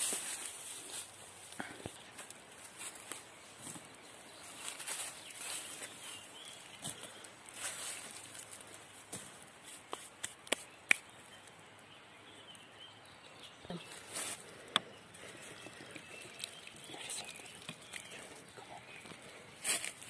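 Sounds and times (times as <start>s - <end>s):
hands digging through dry leaves: 0.0s - 3.7s, 4.3s - 10.8s, 13.8s - 14.5s, 19.2s - 20.0s.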